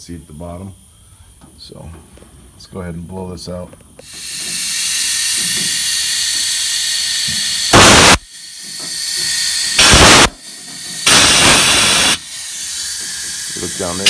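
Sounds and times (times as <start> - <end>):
compressed air blow gun hissing: 4.0 - 14.0
loud air blasts: 4.0 - 14.0.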